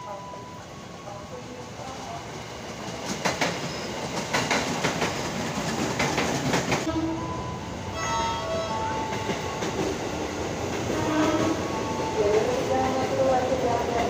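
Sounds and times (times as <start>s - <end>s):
train wheels clacking over rail joints: 2.9s - 6.9s.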